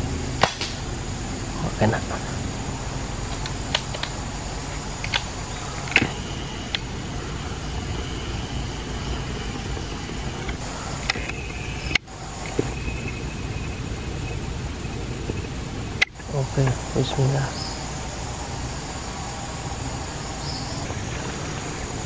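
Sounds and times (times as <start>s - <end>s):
steady background noise: 0.0s - 22.0s
thin high tone: 1.4s - 22.0s
sharp light clicks: 3.3s - 6.9s.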